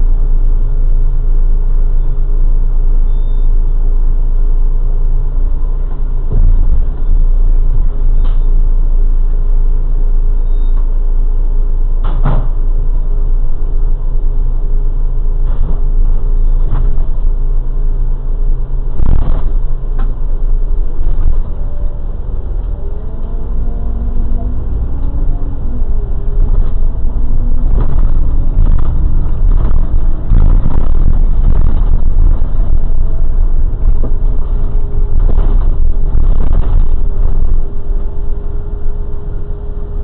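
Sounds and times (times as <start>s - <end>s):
engine and road rumble: 0.0s - 40.0s
sharp knocks and rattles: 26.3s - 38.1s.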